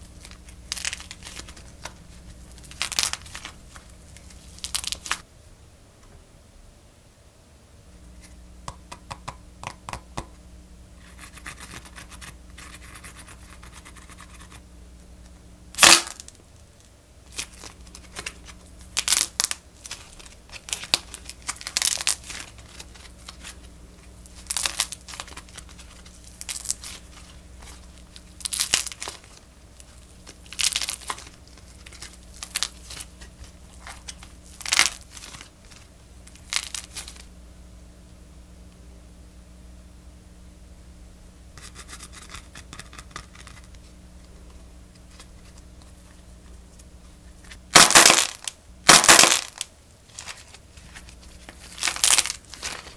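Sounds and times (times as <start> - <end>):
clay crackling and crinkling: 0.0 - 5.2, 15.8 - 37.3, 41.6 - 52.9.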